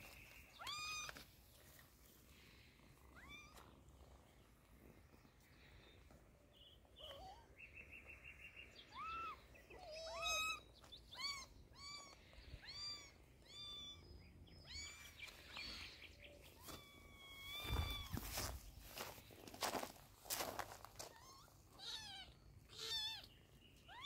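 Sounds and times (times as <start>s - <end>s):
kittens mewing: 8.9s - 15.2s.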